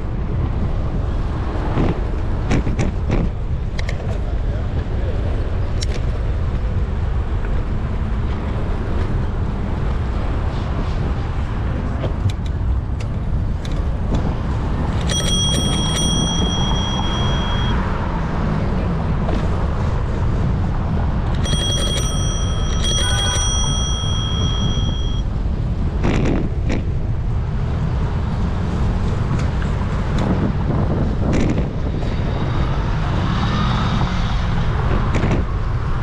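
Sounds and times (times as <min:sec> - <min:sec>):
traffic noise: 0:00.0 - 0:36.0
wind: 0:00.0 - 0:36.0
bicycle bell ringing: 0:15.0 - 0:17.9, 0:21.3 - 0:25.3.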